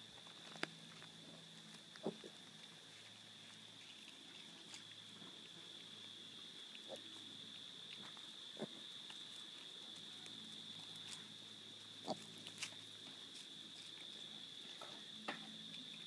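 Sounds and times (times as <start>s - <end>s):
piglets grunting: 2.0s - 2.4s, 8.6s - 8.8s, 12.0s - 12.4s.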